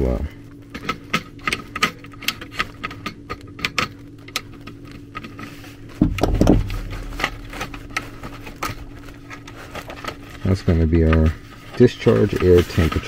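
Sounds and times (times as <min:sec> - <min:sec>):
faint steady hum: 0:00.0 - 0:13.0
low thump: 0:06.0 - 0:07.8.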